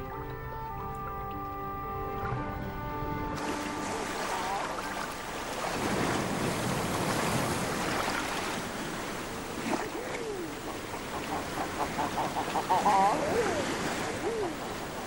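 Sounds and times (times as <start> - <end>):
sea surf and choppy water: 0.0 - 15.0
birds splashing: 3.2 - 15.0
duck calls: 10.7 - 13.6.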